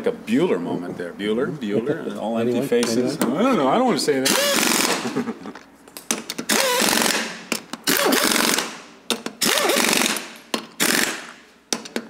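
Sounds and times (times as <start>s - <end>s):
impact wrench rattling: 6.1s - 12.0s.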